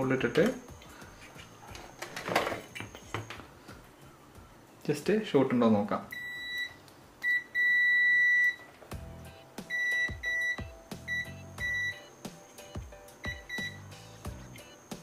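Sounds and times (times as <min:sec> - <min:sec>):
background music: 0:00.0 - 0:15.0
multimeter continuity beeps: 0:06.1 - 0:08.7, 0:09.7 - 0:13.9.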